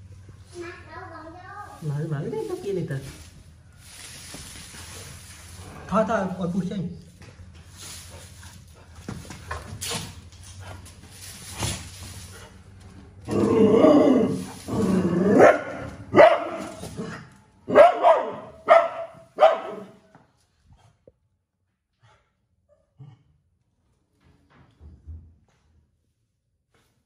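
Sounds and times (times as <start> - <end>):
quiet scuffling: 1.6 - 6.0
dog barking sharply: 15.4 - 16.8, 17.7 - 20.0.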